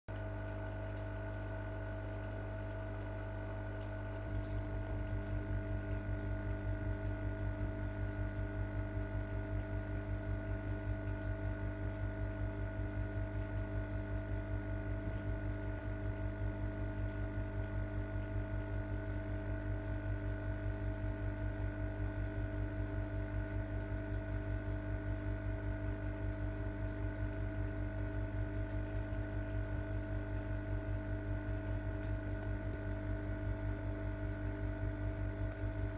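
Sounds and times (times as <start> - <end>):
aquarium equipment humming: 0.1 - 35.9.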